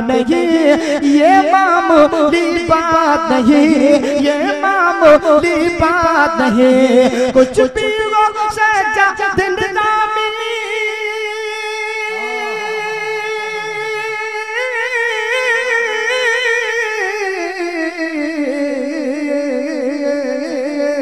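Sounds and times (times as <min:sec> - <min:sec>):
person singing long wavering note: 0:12.0 - 0:14.3.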